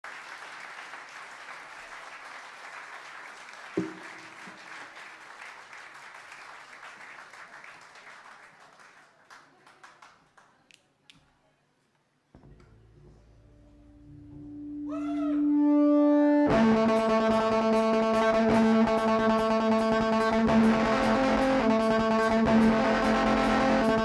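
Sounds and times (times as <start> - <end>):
crowd cheering and applauding: 0.0 - 10.0
loud thump with low ring: 3.8 - 4.2
low stage hum: 12.3 - 16.8.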